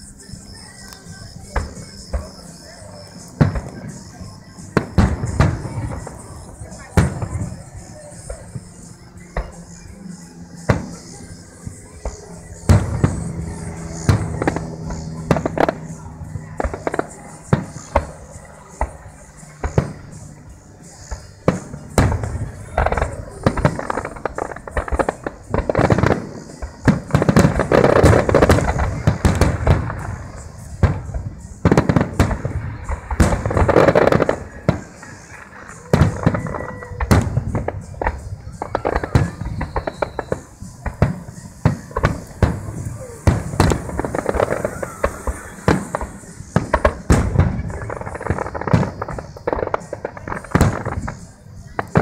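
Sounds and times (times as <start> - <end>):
rapid booms and crackling: 12.6 - 15.8, 21.1 - 52.0
firework shells bursting: 21.2 - 52.0.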